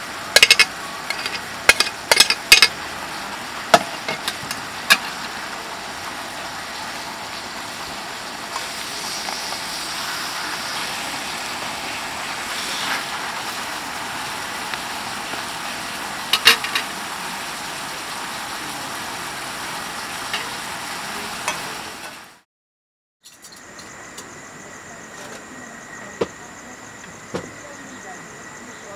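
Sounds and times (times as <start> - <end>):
food sizzling in a skillet: 0.0 - 22.4
metal tongs clacking against pan: 0.4 - 2.8.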